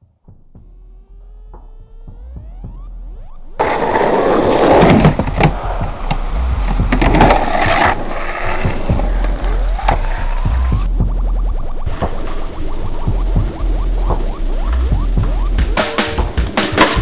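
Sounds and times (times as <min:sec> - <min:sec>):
electronic sounds rising in pitch: 0:01.2 - 0:17.0
skateboard clacks: 0:03.6 - 0:10.9, 0:14.1 - 0:17.0
skateboard wheels rolling: 0:03.6 - 0:10.9, 0:11.9 - 0:17.0.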